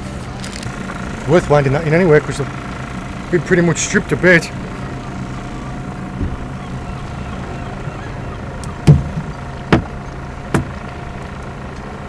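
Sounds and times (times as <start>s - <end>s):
motorboat engine drone: 0.0s - 12.0s
sharp knocks: 8.8s - 10.8s.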